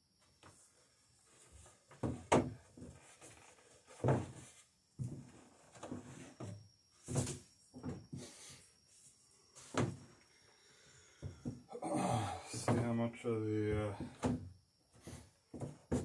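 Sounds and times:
wooden knocks and clunks: 0:01.4 - 0:08.4, 0:09.6 - 0:10.1, 0:11.2 - 0:11.7, 0:12.3 - 0:13.1, 0:13.7 - 0:16.0.

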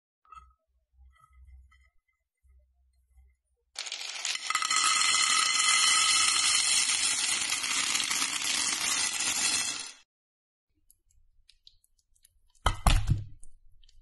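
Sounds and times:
dry pasta pouring and clattering: 0:03.8 - 0:10.0.

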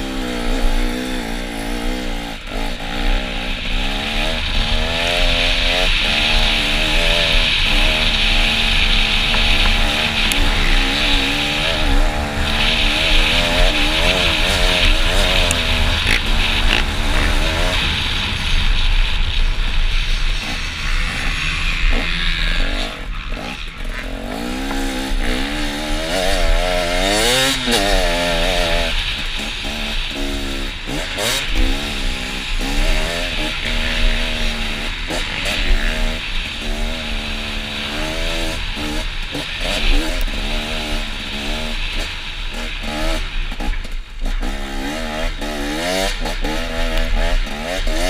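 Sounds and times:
motocross bike engine revving: 0:00.0 - 0:48.0
wind rushing over microphone: 0:00.0 - 0:48.0.

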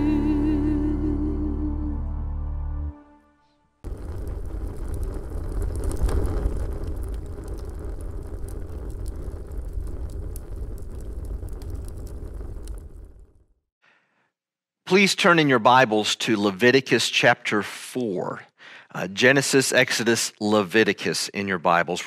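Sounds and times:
fire burning and crackling: 0:03.8 - 0:13.6.

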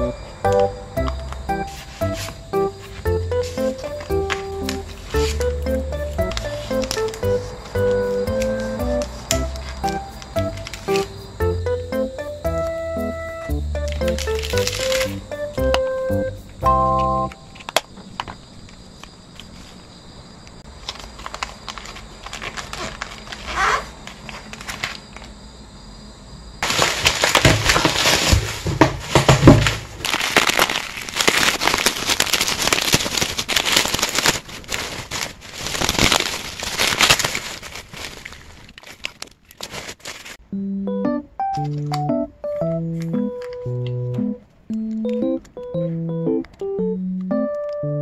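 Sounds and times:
plastic packaging crinkling: 0:01.7 - 0:11.4, 0:13.8 - 0:15.3, 0:20.7 - 0:25.3, 0:26.6 - 0:40.4.

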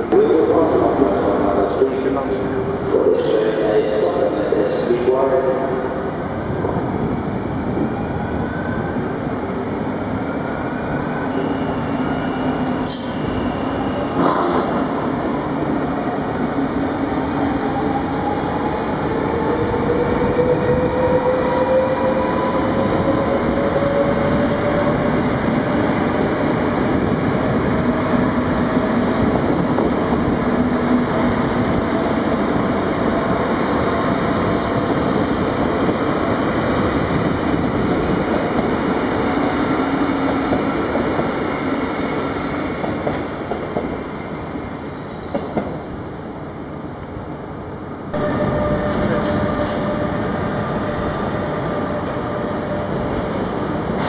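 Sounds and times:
train wheels rumbling on rails: 0:17.2 - 0:46.0, 0:48.1 - 0:54.0.

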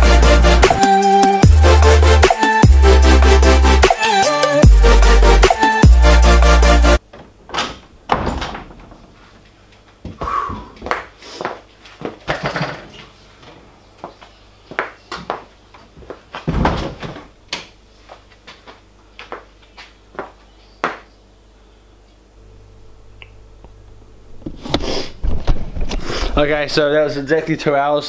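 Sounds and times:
loud clunks: 0:07.1 - 0:09.1
bike gear clicks and knocks: 0:12.0 - 0:13.0.

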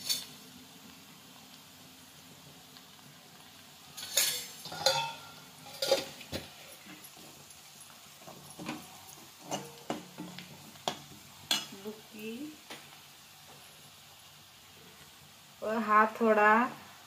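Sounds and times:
onions frying: 0:00.0 - 0:17.0
ladle scraping metal pan: 0:04.0 - 0:07.0.

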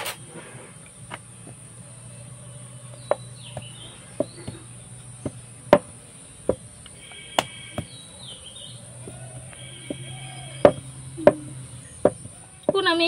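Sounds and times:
rolling pin knocking on wooden board: 0:03.0 - 0:06.7, 0:07.4 - 0:08.0, 0:09.0 - 0:13.0.

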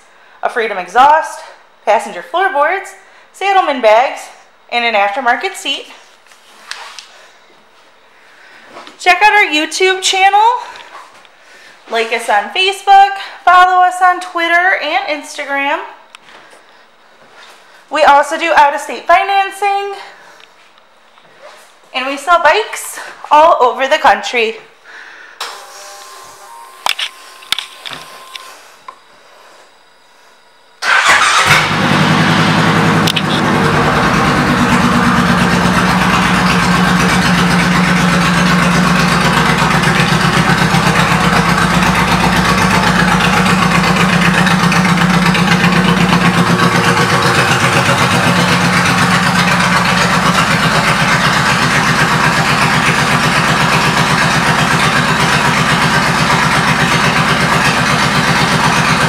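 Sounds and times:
motorcycle engine starting and idling: 0:30.8 - 0:59.0.

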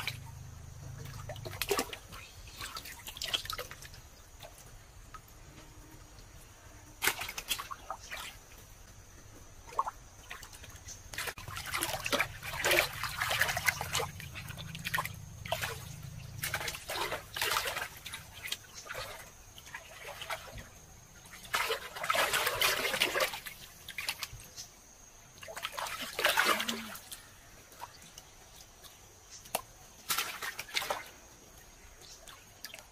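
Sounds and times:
hands splashing in muddy water: 0:11.1 - 0:20.7, 0:21.4 - 0:24.3, 0:29.5 - 0:31.2.

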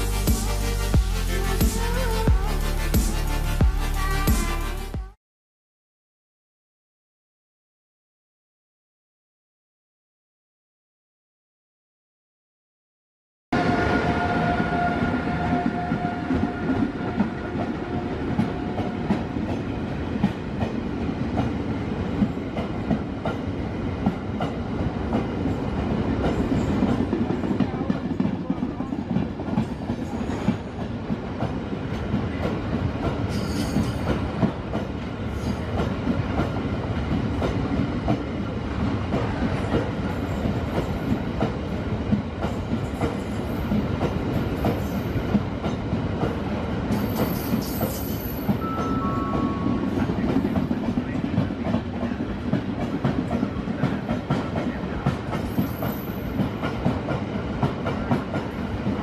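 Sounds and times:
freight train rumbling past: 0:13.6 - 0:59.0.

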